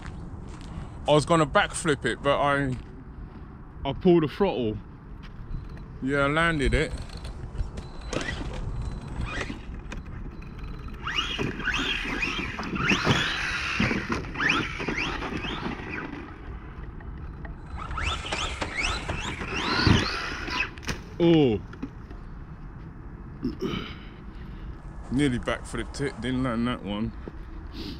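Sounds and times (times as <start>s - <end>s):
electric motor whining: 6.2s - 16.7s, 17.4s - 21.0s
toy truck landing thud: 11.1s - 16.3s.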